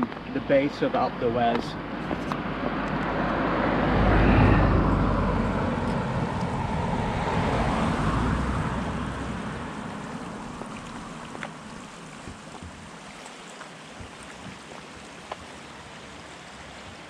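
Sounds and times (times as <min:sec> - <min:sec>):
road noise while cycling: 0:00.0 - 0:17.0
wind buffeting microphone: 0:01.8 - 0:13.1.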